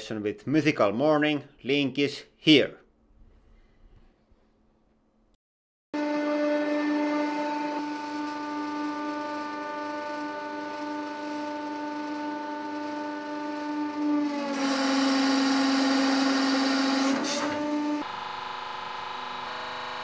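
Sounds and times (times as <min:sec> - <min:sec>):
hydraulic pump humming: 0:06.9 - 0:20.0.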